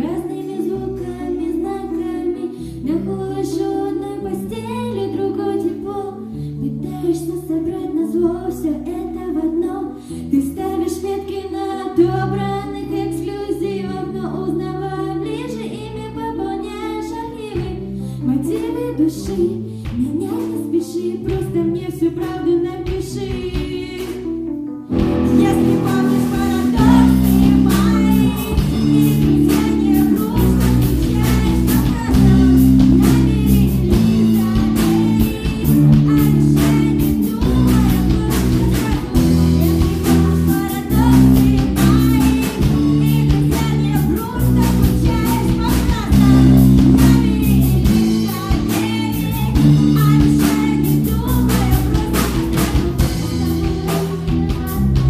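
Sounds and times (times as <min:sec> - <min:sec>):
keyboard: 0:00.0 - 0:55.0
woman singing: 0:00.0 - 0:55.0
bass line: 0:06.6 - 0:55.0
electric guitar: 0:17.5 - 0:55.0
drum kit beat: 0:21.3 - 0:55.0.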